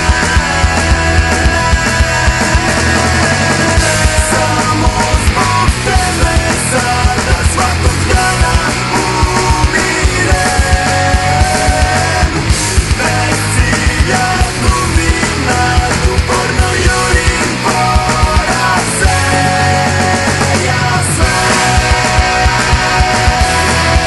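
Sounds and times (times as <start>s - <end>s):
loud punk rock music: 0.0s - 24.0s.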